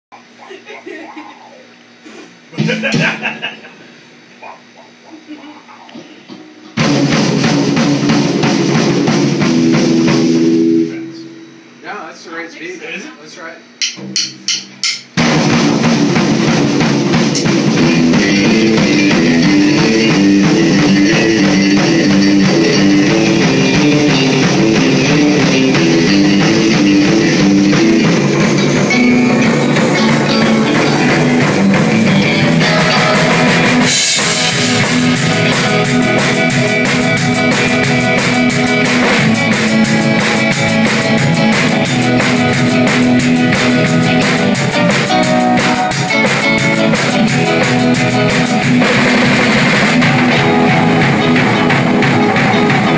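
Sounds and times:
rock band playing: 0:02.6 - 0:03.5, 0:06.4 - 0:11.6, 0:13.8 - 0:52.9
cymbals crashing: 0:13.8 - 0:52.9.

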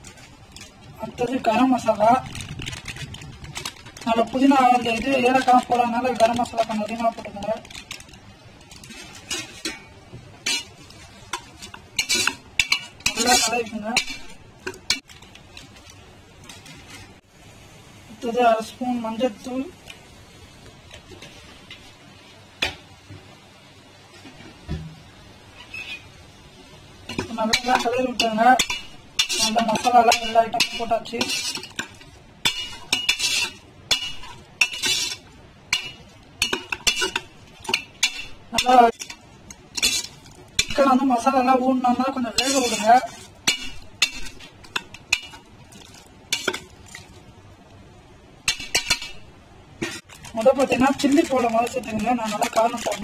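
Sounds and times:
frying sizzle: 0:00.0 - 0:53.0
spatula scraping a pot: 0:10.4 - 0:14.4, 0:27.4 - 0:31.9, 0:32.5 - 0:39.2, 0:39.8 - 0:40.9, 0:42.3 - 0:45.4.

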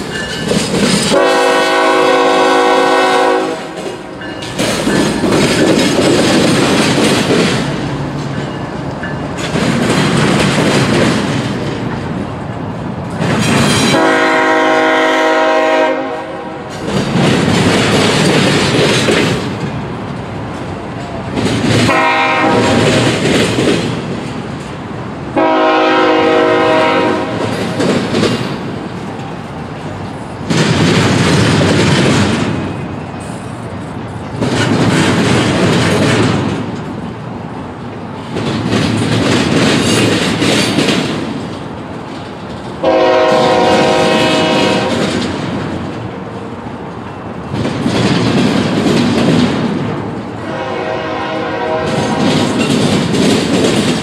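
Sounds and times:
passing train rumble and clatter: 0:00.0 - 0:54.0
locomotive air horn: 0:01.1 - 0:03.9, 0:13.9 - 0:16.8, 0:21.9 - 0:23.0, 0:25.4 - 0:27.5, 0:42.8 - 0:45.0, 0:50.4 - 0:52.3.

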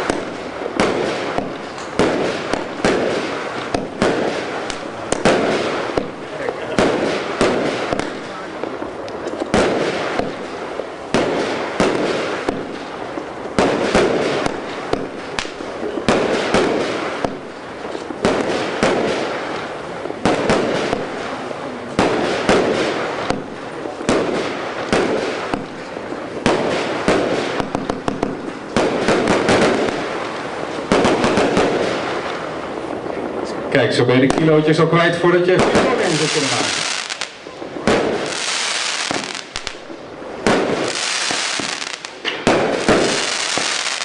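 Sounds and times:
firework bangs: 0:00.0 - 0:44.0
crackle of bursting stars: 0:35.8 - 0:44.0.

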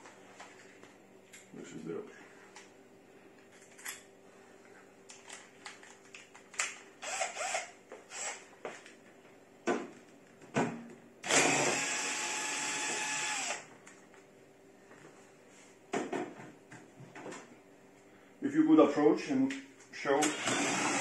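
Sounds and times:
electric drill running: 0:07.0 - 0:08.5, 0:11.2 - 0:13.7, 0:20.2 - 0:21.0.

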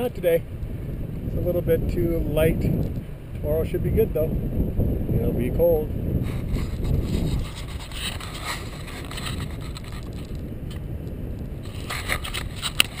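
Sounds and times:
wind rumbling on microphone: 0:00.0 - 0:13.0
camera handling clicks and scrapes: 0:06.3 - 0:10.8, 0:11.6 - 0:13.0.

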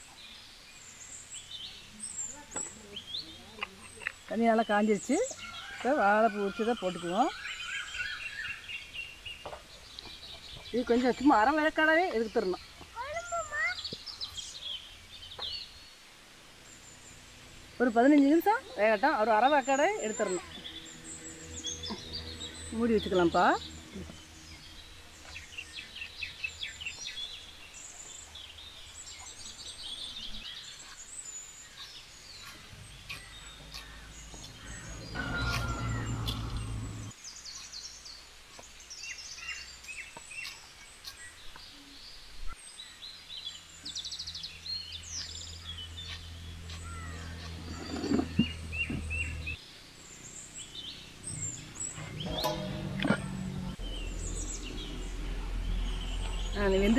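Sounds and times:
small birds chirping: 0:00.0 - 0:56.9
low steady hum: 0:14.1 - 0:30.5, 0:31.1 - 0:37.2, 0:43.6 - 0:56.9.

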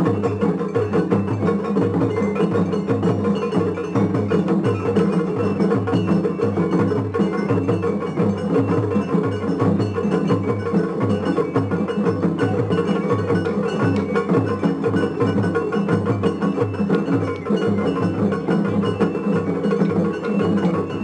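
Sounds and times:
bell-like metal clangs: 0:00.0 - 0:21.0
taiko drums beating: 0:00.0 - 0:21.0.

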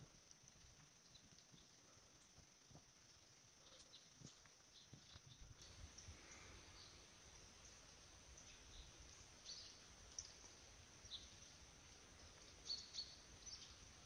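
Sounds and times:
faint high bird chirps: 0:03.6 - 0:11.6, 0:12.2 - 0:14.0.

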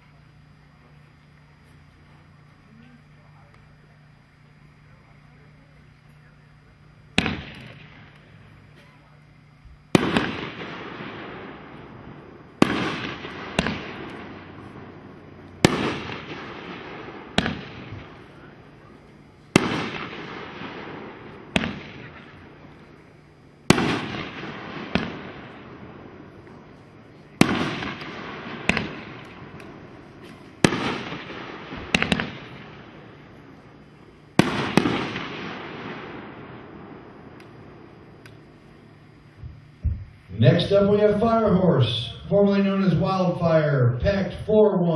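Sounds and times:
firework cake firing bangs: 0:07.1 - 0:09.2, 0:09.8 - 0:38.3.

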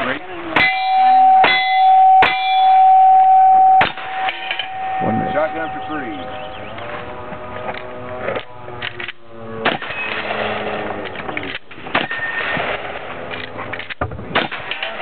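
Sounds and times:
voices: 0:00.0 - 0:08.8
rifle shots: 0:03.8 - 0:04.6, 0:09.0 - 0:15.0.

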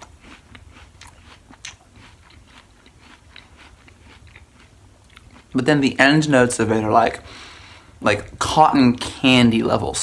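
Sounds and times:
apple crunching while chewing: 0:00.0 - 0:05.8.

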